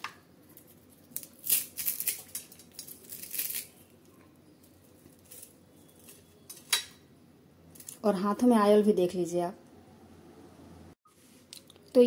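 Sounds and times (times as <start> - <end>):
potato fritters crunching: 0.5 - 3.9.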